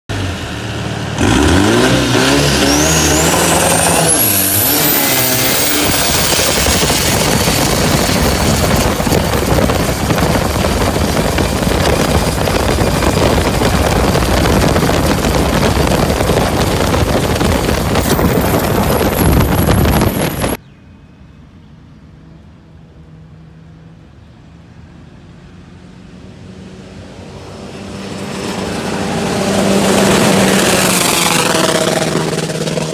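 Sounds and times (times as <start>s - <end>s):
boat engine running: 2.0s - 20.6s.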